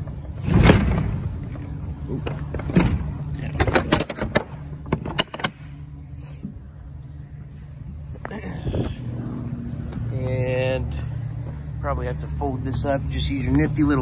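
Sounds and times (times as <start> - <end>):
steady low hum: 0.0 - 14.0
metallic clicks and clanks: 2.2 - 5.9.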